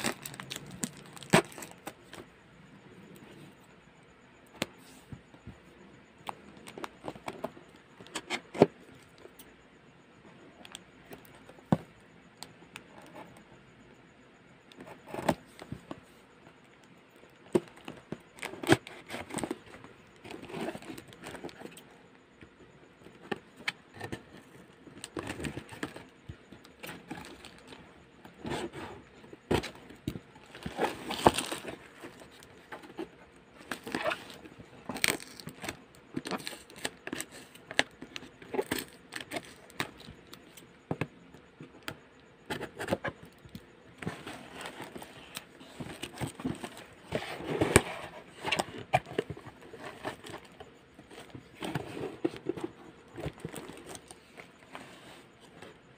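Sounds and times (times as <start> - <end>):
plastic wrapping crinkling: 0.0 - 1.9
cardboard box being handled: 26.9 - 37.5, 44.0 - 55.4.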